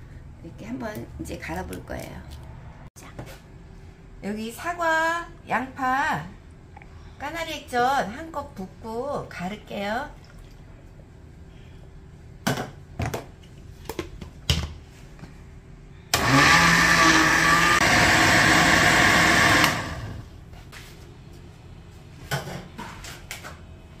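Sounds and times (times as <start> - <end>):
blender chopping: 16.2 - 20.3.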